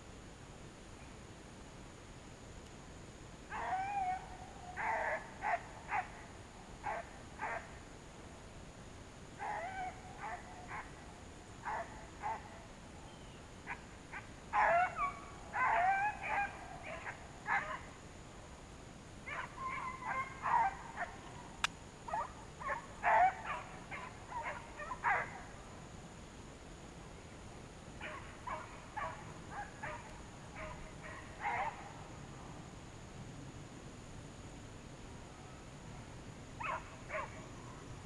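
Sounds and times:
distant hounds barking and baying: 3.5s - 7.8s, 9.4s - 12.7s, 13.6s - 18.0s, 19.2s - 25.6s, 28.0s - 32.0s, 36.6s - 37.8s.

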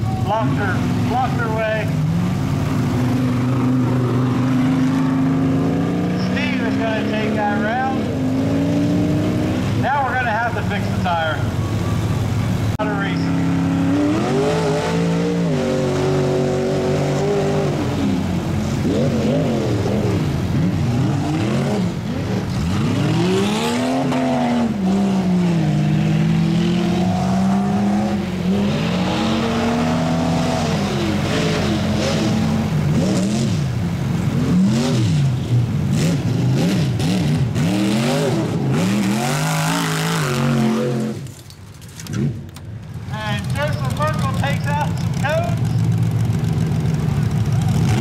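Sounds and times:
truck engines revving: 0.0s - 48.0s.

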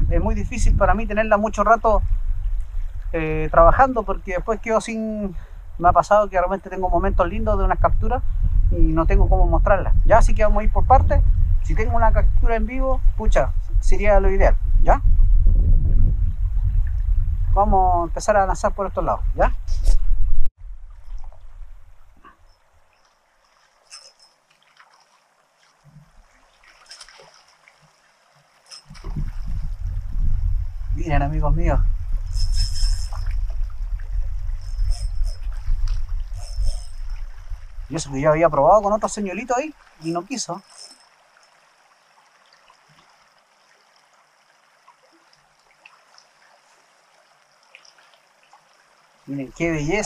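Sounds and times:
faint flowing river: 0.0s - 15.0s, 20.6s - 50.0s
faint running water: 20.6s - 50.0s.

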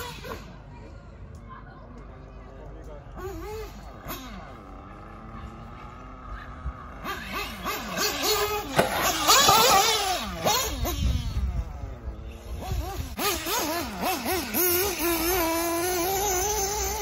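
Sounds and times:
electric motor whining: 3.4s - 17.0s.

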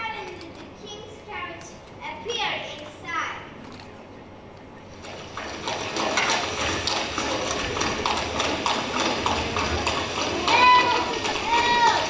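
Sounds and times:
horse hooves clip-clopping: 4.9s - 12.0s.

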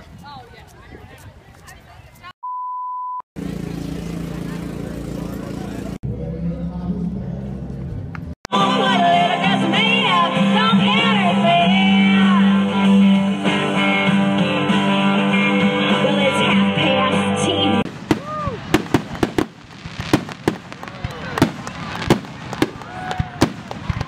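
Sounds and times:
woman singing: 8.5s - 12.9s, 15.6s - 17.8s
firework bangs and crackles: 17.8s - 24.0s.

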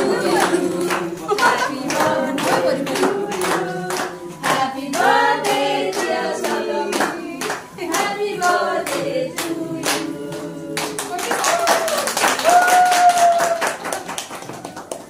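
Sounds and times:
group singing a birthday song: 0.0s - 11.4s
people clapping: 0.0s - 15.0s.

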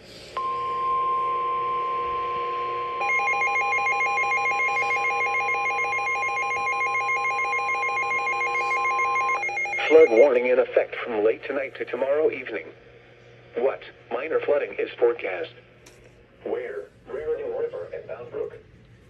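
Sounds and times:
pulsing two-pitch alarm beep: 0.4s - 10.3s
broadcast voice: 9.7s - 12.8s, 13.5s - 15.6s, 16.4s - 18.6s.

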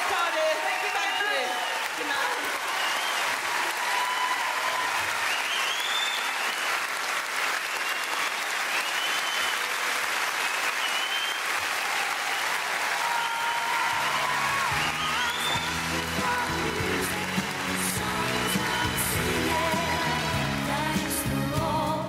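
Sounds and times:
audience applauding: 0.0s - 21.6s
whistles: 2.7s - 3.4s, 5.1s - 6.8s, 7.6s - 9.8s, 10.4s - 11.6s, 14.7s - 15.7s.

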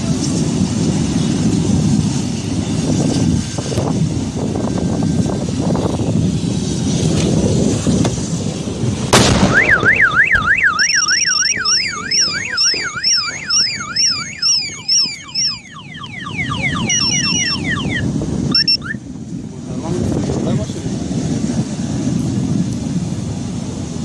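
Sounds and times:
sudden sharp bang: 9.1s - 10.5s
car alarm warbling: 9.4s - 19.0s.

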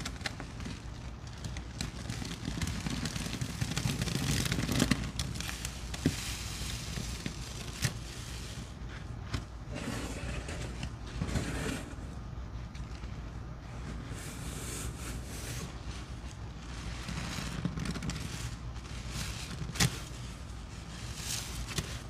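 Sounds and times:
sponge squishing in foamy paste: 0.0s - 22.0s.

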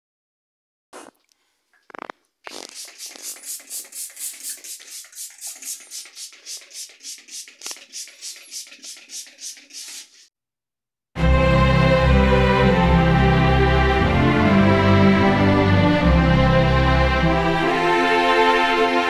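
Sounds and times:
hair styling hissing strokes: 2.5s - 10.3s.

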